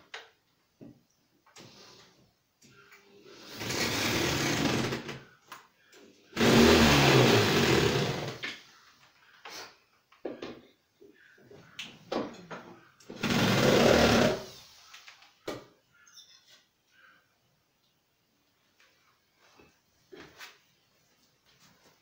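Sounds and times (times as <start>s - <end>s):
cordless drill running: 3.5s - 5.0s, 6.4s - 8.4s, 13.2s - 14.5s.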